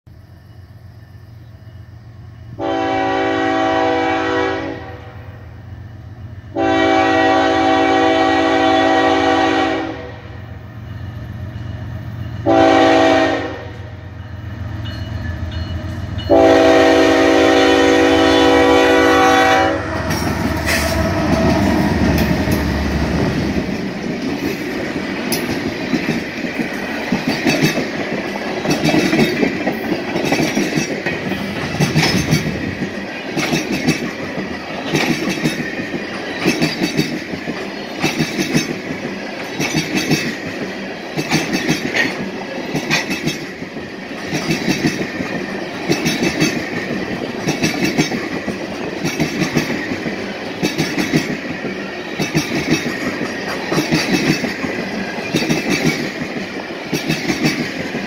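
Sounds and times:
locomotive horn blasts: 2.6 - 5.3, 6.5 - 10.4, 12.4 - 14.0, 16.3 - 21.5
wheels clicking over rail joints: 19.9 - 58.0.

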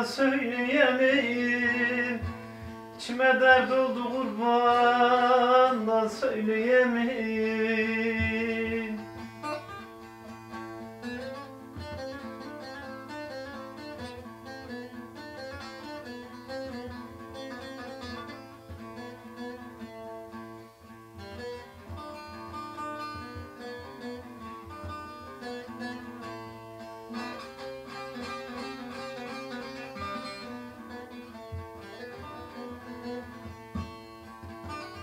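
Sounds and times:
plucked long-necked lute: 0.0 - 35.0.

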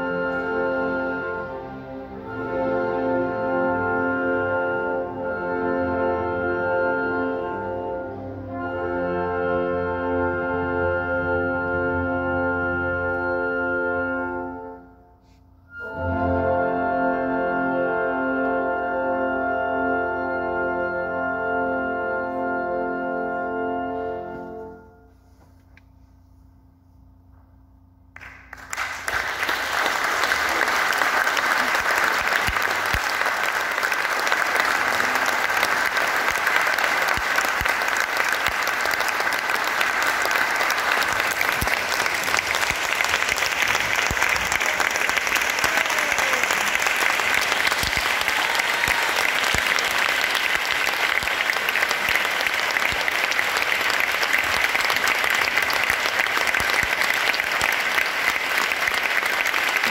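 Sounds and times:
audience applauding: 28.2 - 59.9.

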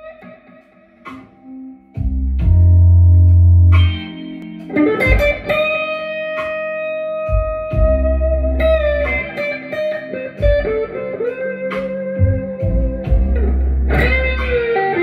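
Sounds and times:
electric guitar blues lead: 0.0 - 15.0
deep low bass notes: 2.0 - 4.0, 7.7 - 9.2, 12.2 - 14.7.

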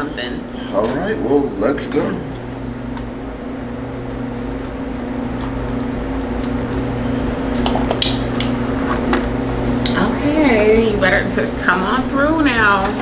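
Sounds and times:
air-conditioning hum: 0.0 - 13.0.

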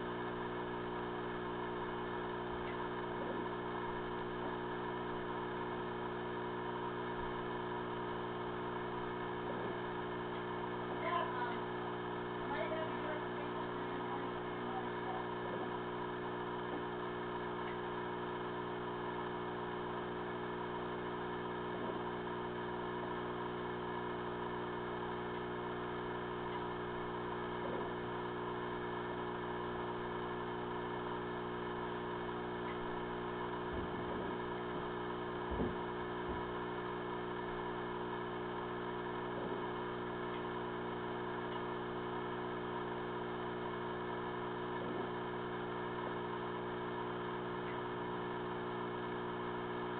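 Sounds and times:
steady electrical hum: 0.0 - 49.9.

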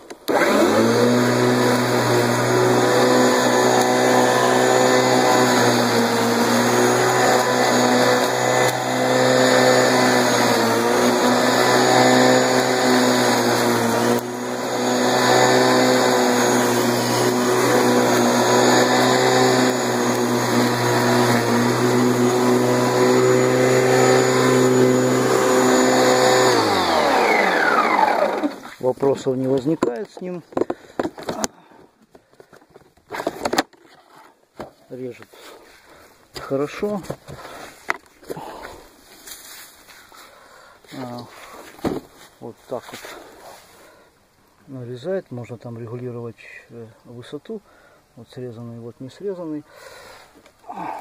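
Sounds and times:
lawnmower winding down: 0.0 - 28.8
electric lawnmower running: 0.1 - 28.8.

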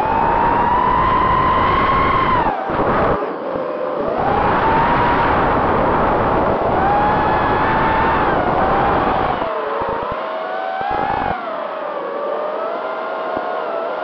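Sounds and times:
wind rush: 0.0 - 10.2, 10.8 - 11.4
drone motors whining: 0.0 - 14.0.

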